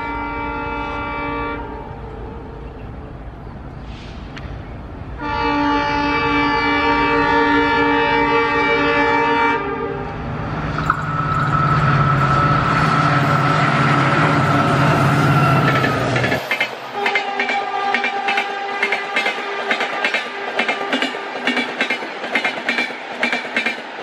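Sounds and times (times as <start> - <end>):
train horn blast: 0.0 - 2.8, 5.2 - 10.3, 16.9 - 21.2
train rumbling on rails: 0.0 - 24.0.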